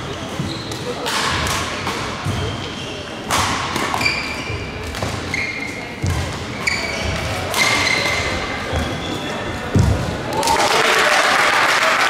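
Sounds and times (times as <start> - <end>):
shoes squeaking on court: 0.0 - 1.0, 1.8 - 10.2
rackets striking shuttlecock: 0.3 - 9.0.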